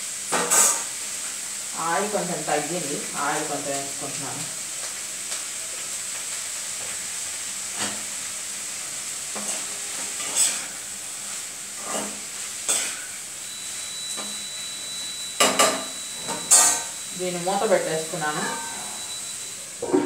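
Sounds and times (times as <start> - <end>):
vegetables sizzling in oil: 0.0 - 20.0
spatula scraping pan: 0.3 - 0.9, 9.3 - 10.8, 11.8 - 13.2, 18.1 - 19.2.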